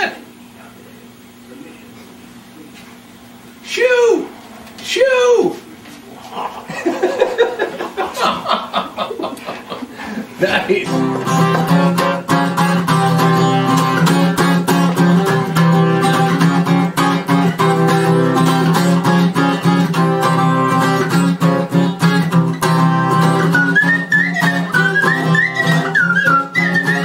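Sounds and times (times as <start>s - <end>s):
strummed acoustic guitar: 10.0s - 27.0s.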